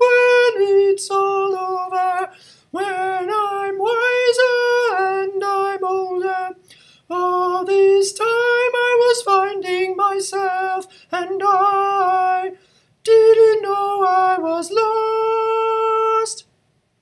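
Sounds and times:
man singing unaccompanied: 0.0 - 16.5.

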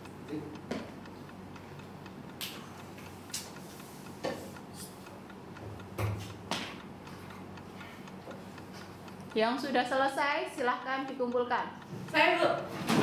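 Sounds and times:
faint ticking: 0.0 - 12.7
knocks and rustles at wooden desks: 12.7 - 13.0.

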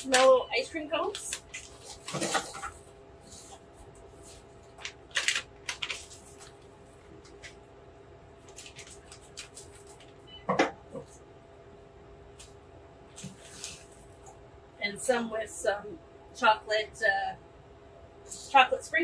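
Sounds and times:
plastic wrapper crinkling: 0.0 - 3.5, 4.2 - 7.6, 8.4 - 10.2
faint machine hum: 0.0 - 19.0.

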